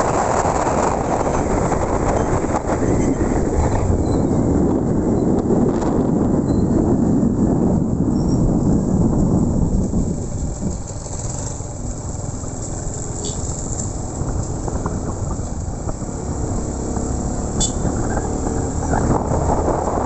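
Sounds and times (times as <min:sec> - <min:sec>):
wind and road noise: 0:00.0 - 0:20.0
motorcycle engine running: 0:08.6 - 0:20.0.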